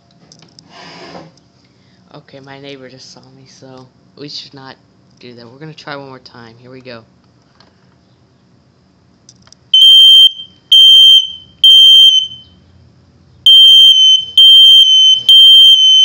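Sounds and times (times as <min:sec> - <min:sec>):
smoke detector beeping: 0:09.8 - 0:12.6, 0:13.5 - 0:16.0.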